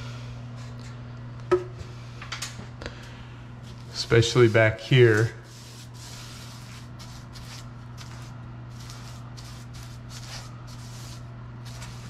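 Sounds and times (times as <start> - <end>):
paintbrush swishing: 4.2 - 12.0.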